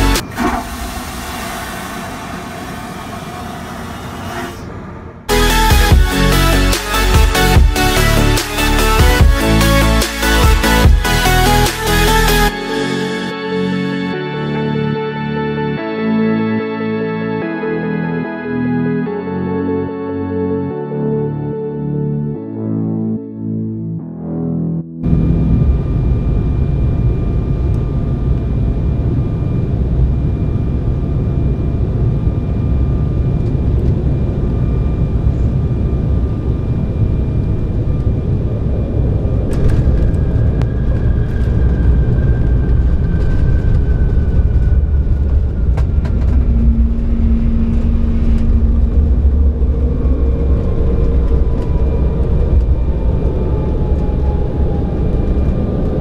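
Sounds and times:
jet cabin rumble: 0:00.0 - 0:08.4, 0:25.0 - 0:56.0
engine whine falling in pitch: 0:00.0 - 0:56.0.

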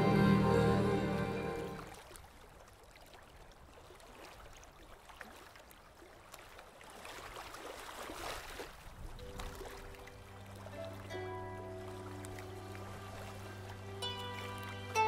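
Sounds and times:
music: 0:00.0 - 0:01.9, 0:09.8 - 0:15.0.

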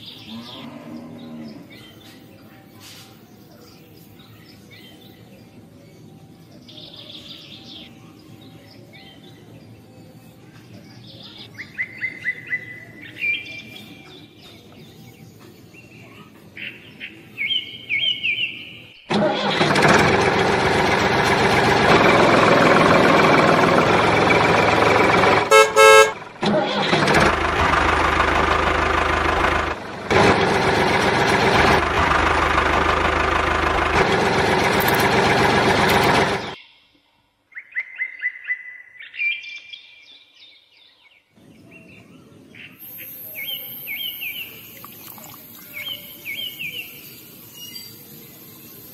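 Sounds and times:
birds chirping: 0:00.0 - 0:19.8, 0:20.7 - 0:48.9
loud motor running: 0:19.1 - 0:36.6
short horn honk: 0:25.4 - 0:26.6.

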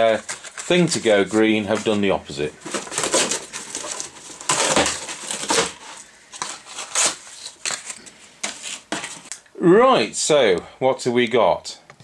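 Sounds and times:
cardboard tearing and crunching: 0:00.0 - 0:09.3
bubble wrap crinkling: 0:00.0 - 0:09.4.

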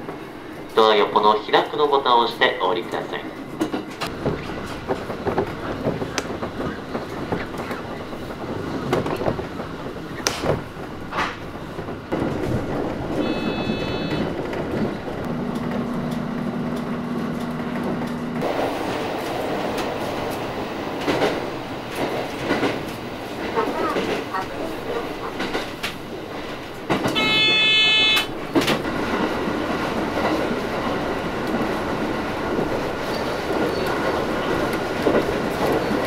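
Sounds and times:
train rumbling on rails: 0:00.0 - 0:36.0
wheels clacking over rail joints: 0:02.6 - 0:36.0
high ringing tone: 0:13.2 - 0:14.3, 0:27.2 - 0:28.3.

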